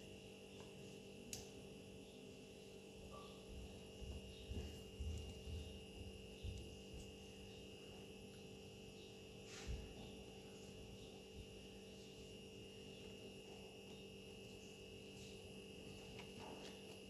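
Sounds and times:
faint electrical hum with whine: 0.0s - 17.0s.

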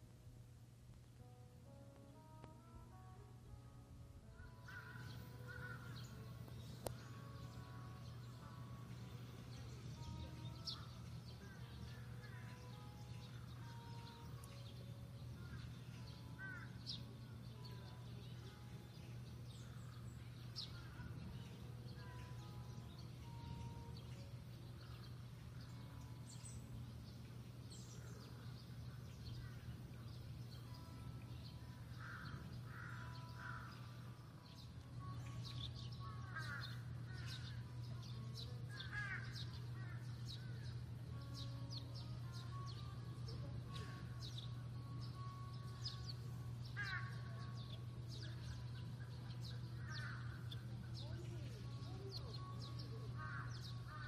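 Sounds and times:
steady low hum: 0.0s - 54.0s
small birds chirping: 4.2s - 54.0s
bird warbling: 4.6s - 6.2s, 46.7s - 47.5s.

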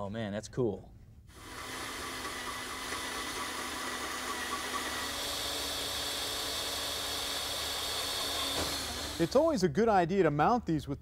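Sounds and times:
cordless drill boring metal: 1.3s - 9.4s.

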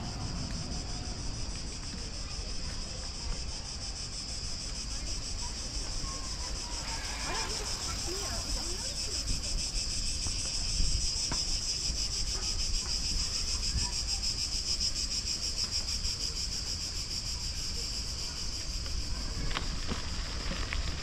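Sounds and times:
low rumble: 0.0s - 2.1s
insects buzzing: 0.0s - 21.0s.

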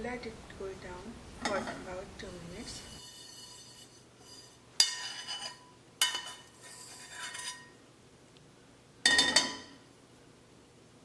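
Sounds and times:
metal spoon scraping steel pan: 2.6s - 7.8s.

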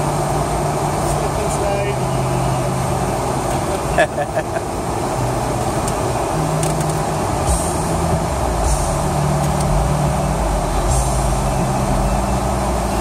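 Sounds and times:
car engine under throttle: 0.0s - 13.0s.

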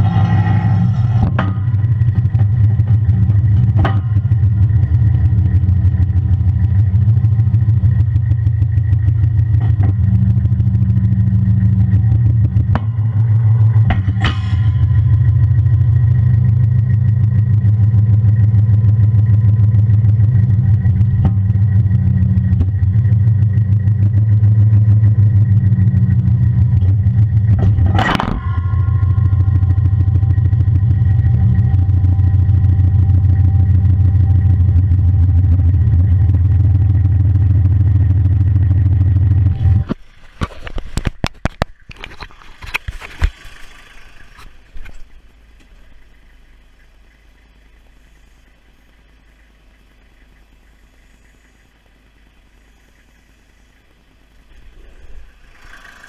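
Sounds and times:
metal clanks: 0.0s - 4.9s, 12.2s - 17.1s, 26.7s - 30.8s
tractor diesel engine running: 0.0s - 56.0s.

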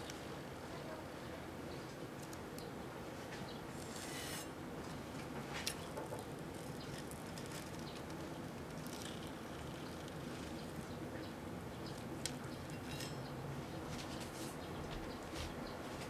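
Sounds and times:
knife rasping scrape: 3.8s - 4.6s
crunchy cereal crackling: 5.2s - 13.2s.

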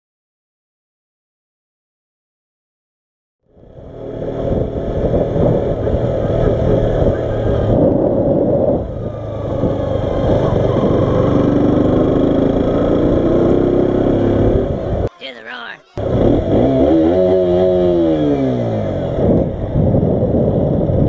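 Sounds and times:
motorcycle engine running: 3.5s - 15.0s, 16.0s - 21.0s.

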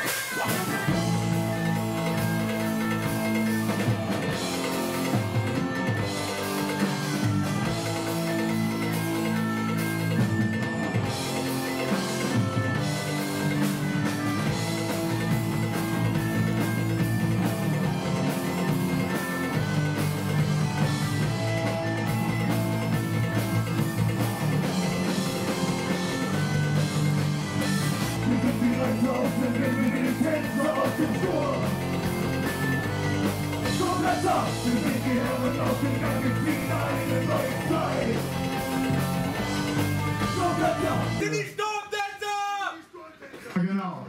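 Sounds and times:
live rock band: 0.0s - 41.4s
singing or shouted vocals: 28.2s - 31.8s, 33.6s - 38.8s, 40.1s - 43.4s.

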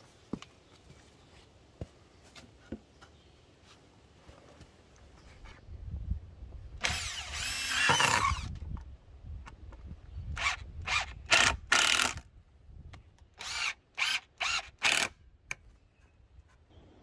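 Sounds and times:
cordless driver driving screws: 6.8s - 8.6s.

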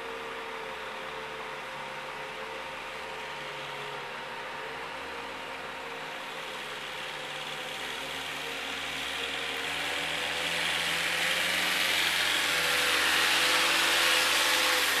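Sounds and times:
forklift engine running: 2.8s - 15.0s.

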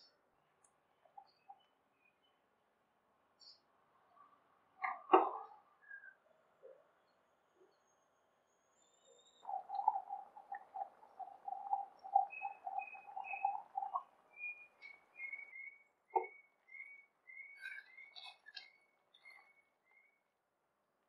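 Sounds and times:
thick gravy bubbling: 9.4s - 14.8s.

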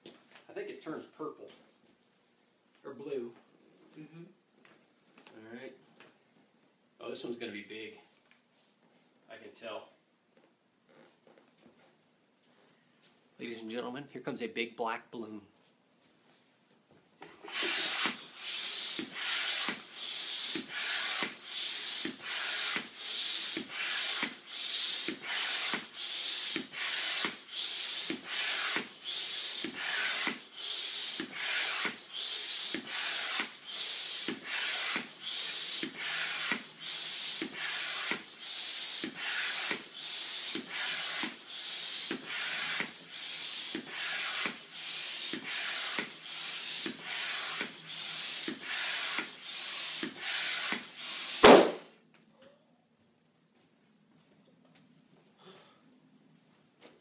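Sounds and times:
hand air pump strokes: 17.4s - 51.5s.

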